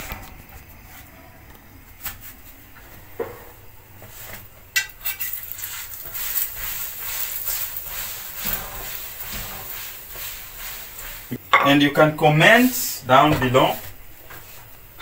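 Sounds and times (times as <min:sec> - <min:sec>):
oil sizzling in hot pan: 0:03.6 - 0:15.0
utensils clinking against pan: 0:04.7 - 0:10.3.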